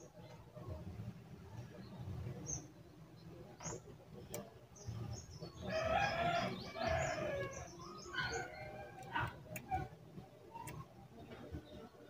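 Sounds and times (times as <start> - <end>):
rooster crowing: 5.7 - 9.4.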